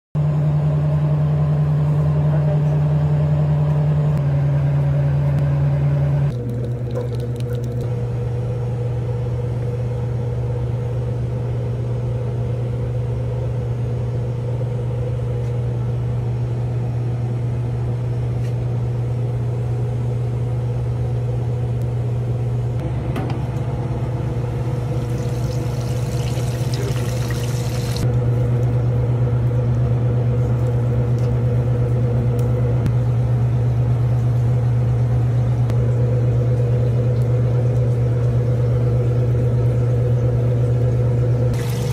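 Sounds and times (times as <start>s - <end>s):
low machine hum: 0.2s - 41.9s
deep-fryer oil sizzling: 24.7s - 28.8s, 41.5s - 41.9s.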